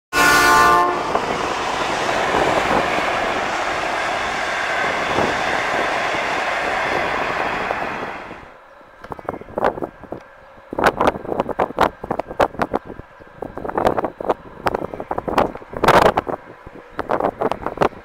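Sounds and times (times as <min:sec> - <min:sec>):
loud tone: 0:00.1 - 0:01.6.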